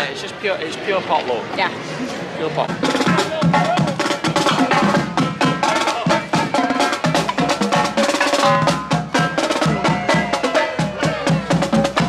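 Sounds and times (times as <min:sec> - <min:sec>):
music with busy percussion beat: 0:02.5 - 0:12.0.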